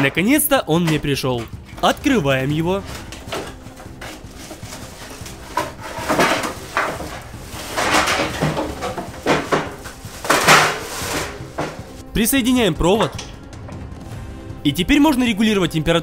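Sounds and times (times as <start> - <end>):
cardboard packaging rustling: 1.3 - 12.0
plastic wrap crinkling: 1.8 - 12.0.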